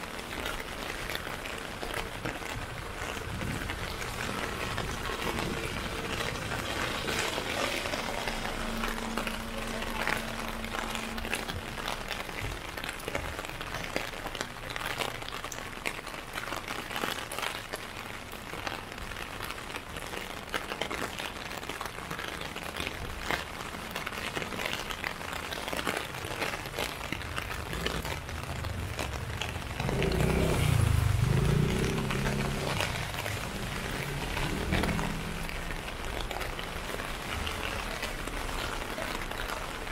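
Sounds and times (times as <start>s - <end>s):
rain tapping on an umbrella: 0.0s - 39.9s
low rumble: 3.2s - 13.0s.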